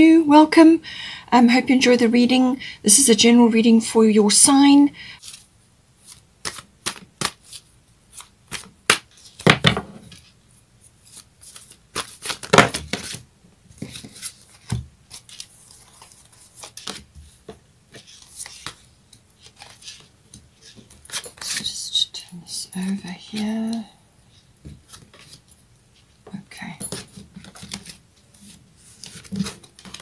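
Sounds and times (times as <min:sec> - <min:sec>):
cards being shuffled: 0:05.2 - 0:10.3, 0:11.0 - 0:13.2, 0:13.8 - 0:21.7, 0:24.6 - 0:25.5, 0:26.9 - 0:30.0.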